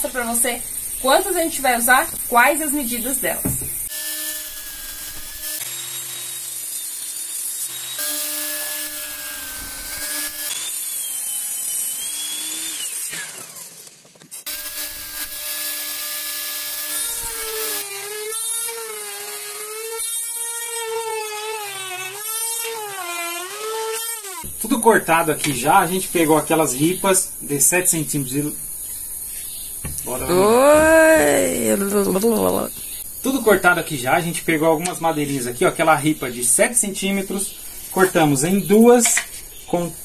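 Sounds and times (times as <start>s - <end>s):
table saw cutting wood: 3.9s - 13.8s, 14.5s - 24.5s.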